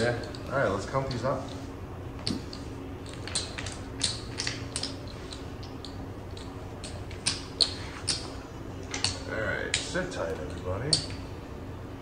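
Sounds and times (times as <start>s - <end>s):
low steady hum: 0.0s - 12.0s
clay chips clacking: 2.2s - 11.2s.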